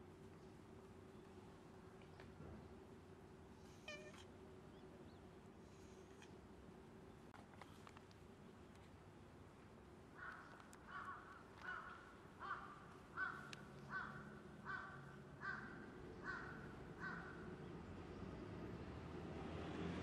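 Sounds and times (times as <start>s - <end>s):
crow cawing: 10.2s - 17.5s.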